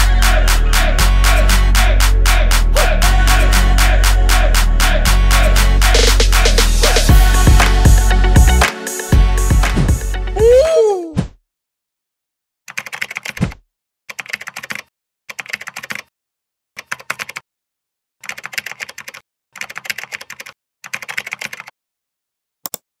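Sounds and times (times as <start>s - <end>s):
rapid keyboard key clicks: 12.7s - 16.1s, 16.8s - 17.4s, 18.2s - 21.7s.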